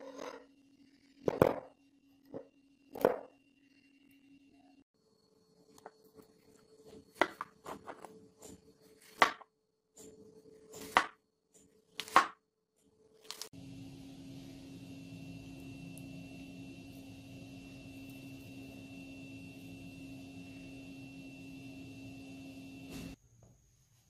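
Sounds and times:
knife chopping apple on board: 10.8 - 11.2, 12.0 - 12.4
steady hum: 13.6 - 23.2.

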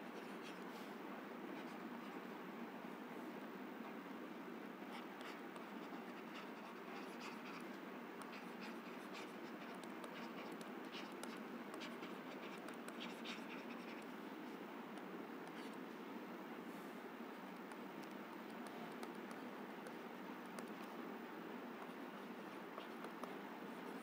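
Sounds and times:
stylus scratching while writing: 4.8 - 14.6, 21.8 - 24.0.

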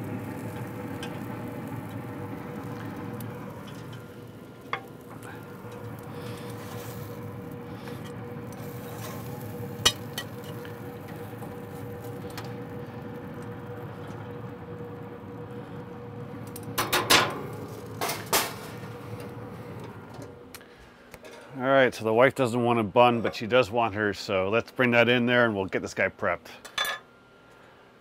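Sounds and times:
hot grill hissing: 0.0 - 20.6.

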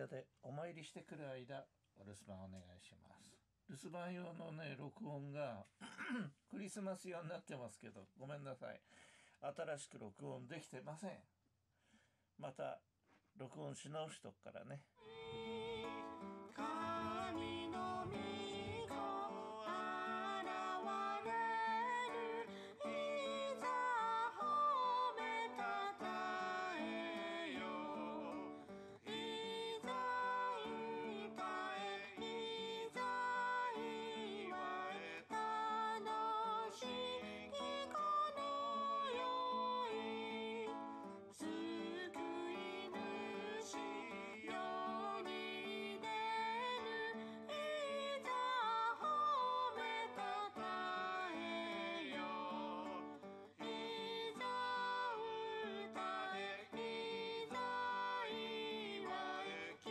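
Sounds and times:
acoustic guitar: 15.0 - 59.9
person singing: 15.0 - 59.9.

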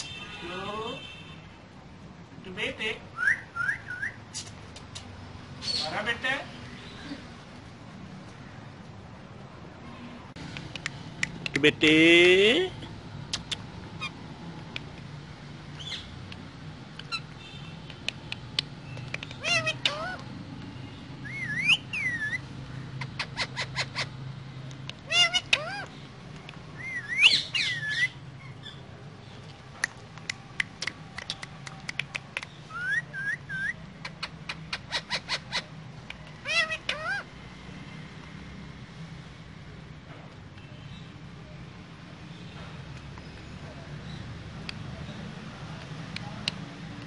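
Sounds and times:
parakeets chirping and squawking: 13.5 - 14.3, 17.0 - 17.6, 18.8 - 28.8, 32.6 - 37.5.

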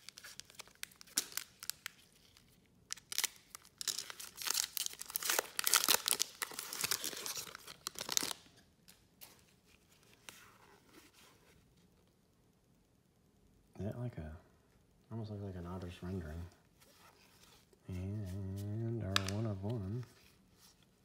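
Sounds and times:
wrapper tearing open: 0.0 - 9.0
wrapper crinkling and rustling: 0.0 - 10.4.

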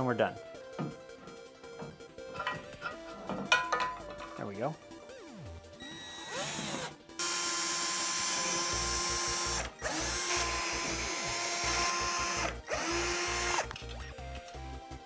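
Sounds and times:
cordless drill boring into plastic: 5.8 - 13.8.

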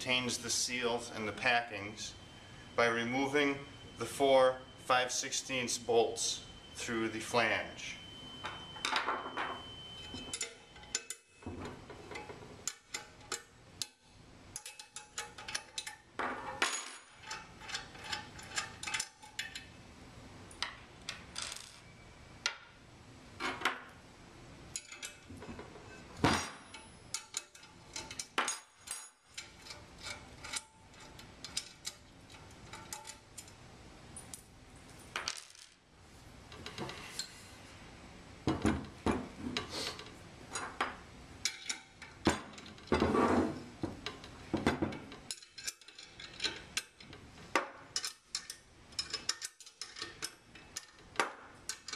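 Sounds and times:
wrenches clinking on metal bolts: 8.8 - 19.7, 24.7 - 33.6, 40.0 - 43.0, 44.0 - 51.9.

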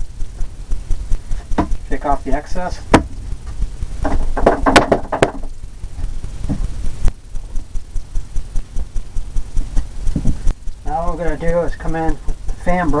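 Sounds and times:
paintbrush knocking on container: 2.9 - 5.5.

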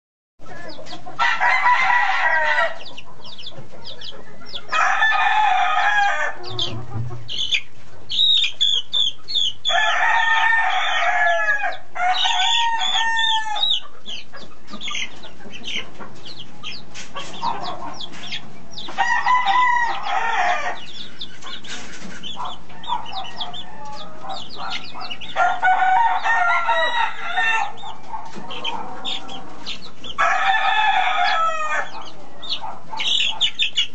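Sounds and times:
chicks peeping: 0.4 - 33.9
rooster crowing: 1.2 - 2.9, 4.5 - 6.9, 9.6 - 13.8, 19.0 - 21.0, 22.4 - 29.5, 30.1 - 33.4.

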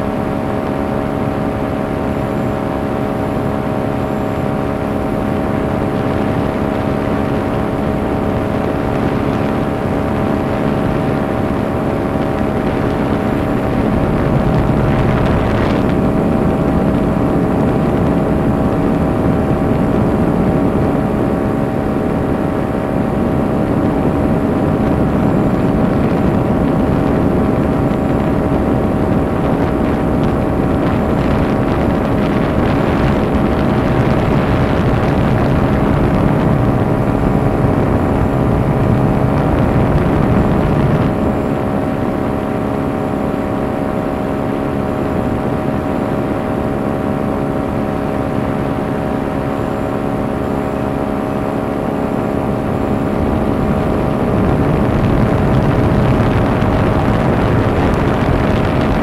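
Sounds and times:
paraglider engine and propeller droning: 0.0 - 59.0.

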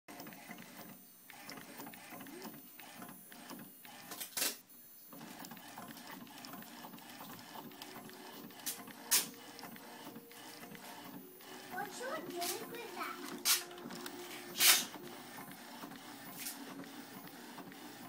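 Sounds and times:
printing machine clattering: 0.1 - 4.6, 5.2 - 18.0
short loud hiss: 14.6 - 14.9.

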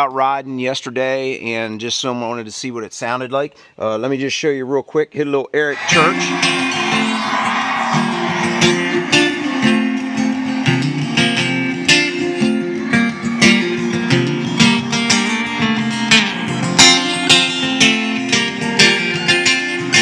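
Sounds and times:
strummed guitar through speakers: 5.8 - 20.0.

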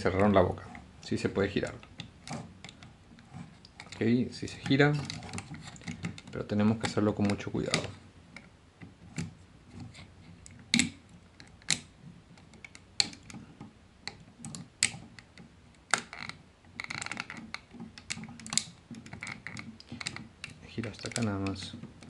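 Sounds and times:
plastic toy parts clicking: 4.6 - 8.5, 10.4 - 22.0.

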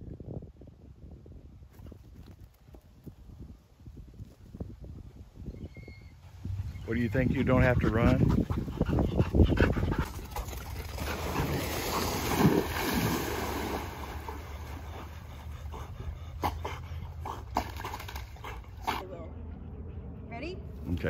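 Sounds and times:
water lapping: 7.3 - 19.0
dogs splashing into water: 10.3 - 15.5, 17.4 - 19.0.

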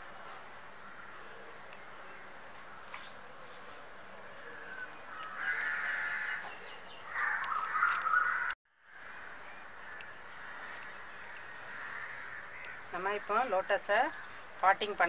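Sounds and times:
faint outdoor background: 0.0 - 15.0
bird calls: 4.3 - 14.5.

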